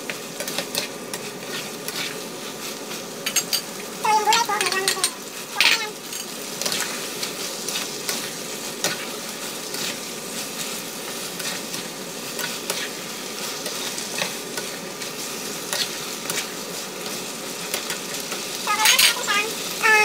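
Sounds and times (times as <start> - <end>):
food sizzling in a frying pan: 0.0 - 20.0
utensils scraping a pan: 0.4 - 3.7.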